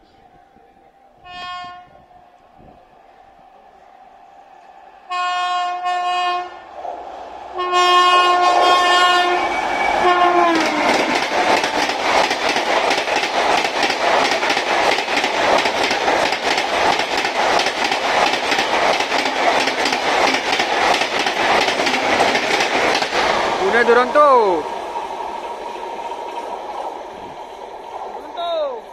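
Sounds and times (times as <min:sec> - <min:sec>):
locomotive horn blasts: 0:01.2 - 0:02.1, 0:05.1 - 0:06.6, 0:07.6 - 0:10.9
train wheels clattering over joints: 0:10.4 - 0:28.2.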